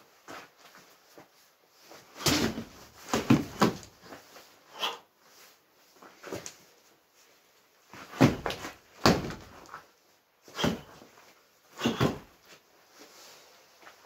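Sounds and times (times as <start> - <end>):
punches thudding on heavy bag: 2.2 - 3.9, 8.1 - 9.5, 10.6 - 11.0, 11.8 - 12.3.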